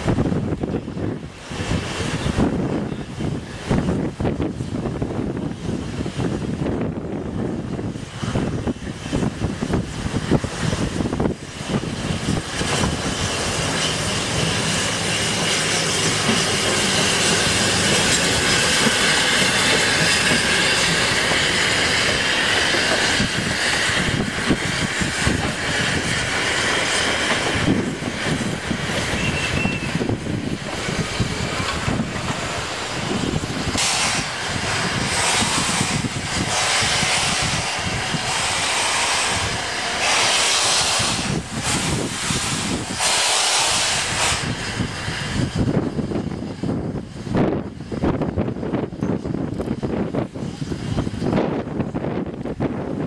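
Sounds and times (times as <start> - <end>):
steam hissing: 0.0 - 52.6
train wheels clattering: 11.6 - 46.6
wheels squealing on curves: 29.0 - 30.1.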